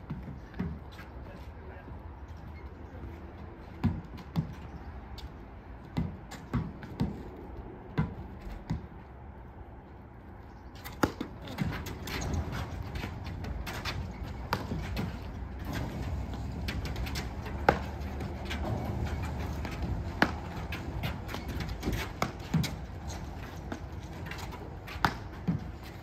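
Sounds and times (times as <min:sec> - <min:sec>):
paddles hitting ball: 0:10.8 - 0:26.0.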